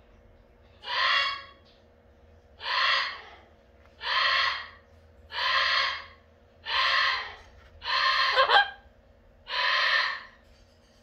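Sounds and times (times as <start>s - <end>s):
parrot squawking: 0.8s - 1.6s, 2.6s - 10.4s.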